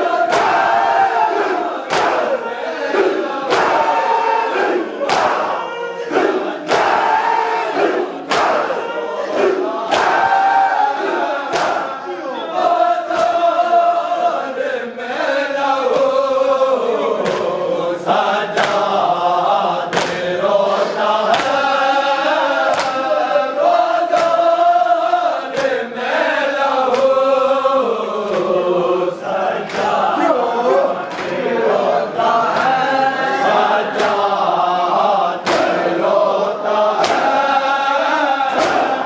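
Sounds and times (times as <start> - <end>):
men chanting a lament: 0.0 - 39.0
hands slapping chests: 0.2 - 2.4, 3.4 - 4.0, 4.6 - 5.5, 6.1 - 10.5, 11.1 - 12.0, 13.1 - 13.5, 15.9 - 16.2, 17.2 - 17.6, 18.5 - 19.0, 19.9 - 21.7, 22.6 - 23.1, 24.1 - 24.5, 25.1 - 25.8, 26.8 - 27.2, 28.2 - 28.6, 29.6 - 30.0, 31.0 - 31.4, 32.4 - 32.8, 33.9 - 34.4, 35.4 - 35.9, 36.9 - 37.6, 38.3 - 39.0.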